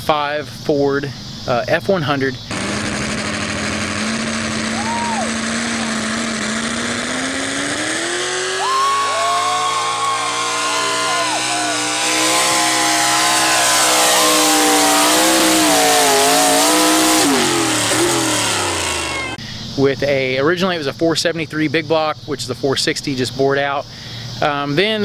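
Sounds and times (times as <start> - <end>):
rushing noise: 2.5 - 19.4
truck engine revving at full throttle: 2.5 - 19.4.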